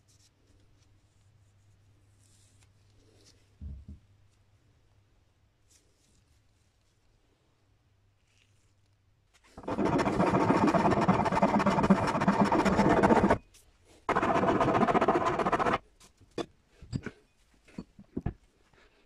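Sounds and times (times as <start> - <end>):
rotary tool grinding wood: 9.6 - 13.4, 14.1 - 15.8.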